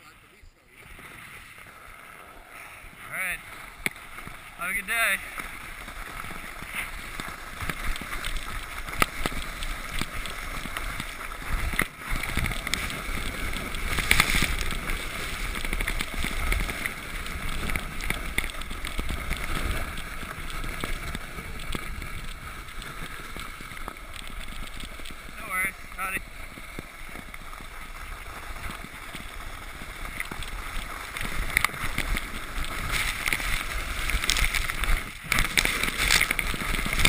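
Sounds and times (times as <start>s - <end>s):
sled scraping over snow: 0.0s - 37.0s
sled knocking over bumps: 2.9s - 37.0s.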